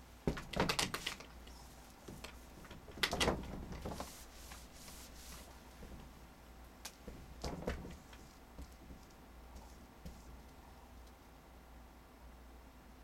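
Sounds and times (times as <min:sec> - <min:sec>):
cloth rubbing whiteboard: 0:00.9 - 0:06.2, 0:07.0 - 0:10.6.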